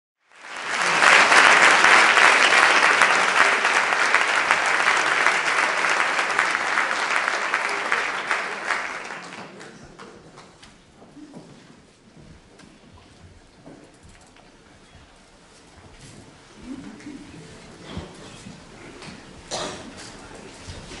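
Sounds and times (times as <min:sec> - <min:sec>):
audience applauding: 0:00.2 - 0:10.0.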